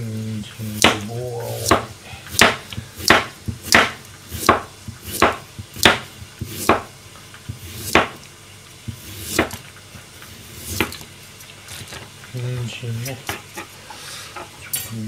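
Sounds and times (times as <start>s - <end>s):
knife chopping on cutting board: 0.8s - 8.2s, 8.9s - 9.6s, 10.6s - 11.0s.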